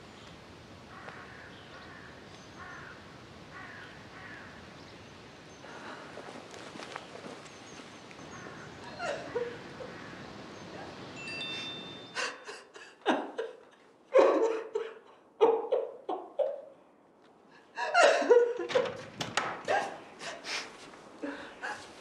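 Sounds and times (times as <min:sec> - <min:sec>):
woman sobbing: 0:08.8 - 0:09.6, 0:12.1 - 0:16.6, 0:17.7 - 0:18.8.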